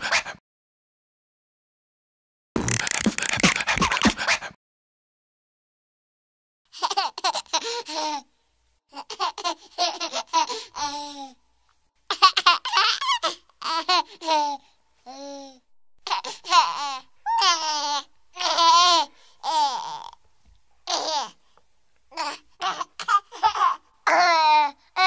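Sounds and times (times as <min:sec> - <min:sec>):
baby giggling: 0:03.0 - 0:04.5, 0:06.8 - 0:08.2, 0:08.9 - 0:11.1, 0:12.1 - 0:14.6, 0:16.0 - 0:20.2, 0:20.8 - 0:21.4, 0:22.1 - 0:24.8.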